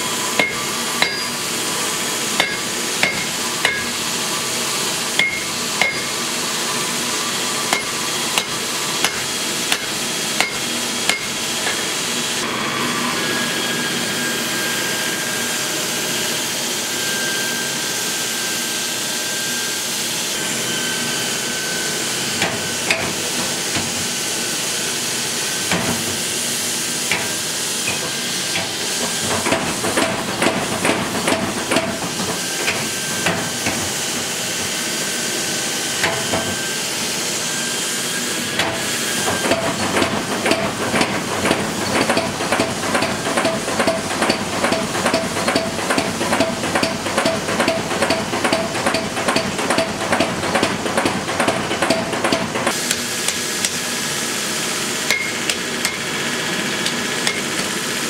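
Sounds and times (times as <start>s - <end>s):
hammer ringing on anvil: 0.4s - 1.5s, 2.4s - 4.0s, 5.2s - 6.2s, 7.7s - 11.4s, 55.1s - 56.1s.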